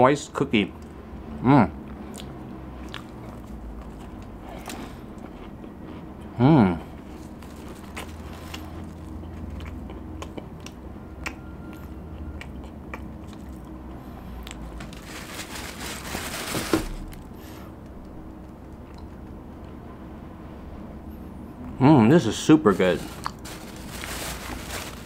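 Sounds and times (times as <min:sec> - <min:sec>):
person chewing cookie: 0:01.9 - 0:15.0, 0:23.0 - 0:23.4.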